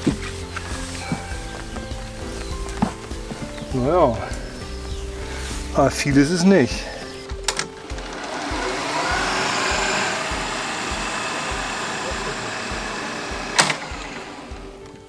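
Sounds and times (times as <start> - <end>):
reel mower whirring: 7.5 - 15.0.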